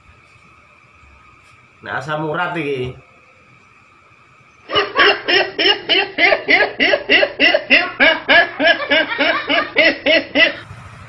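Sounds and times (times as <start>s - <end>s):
person laughing: 4.7s - 10.6s.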